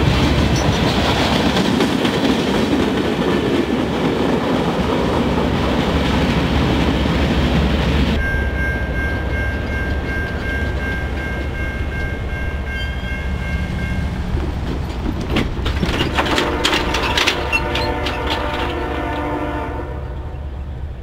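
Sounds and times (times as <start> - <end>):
wheels clacking over rail joints: 0.0 - 8.2, 8.8 - 19.6
train wheel squeal: 8.2 - 15.0, 15.8 - 19.4
locomotive horn: 16.2 - 20.5.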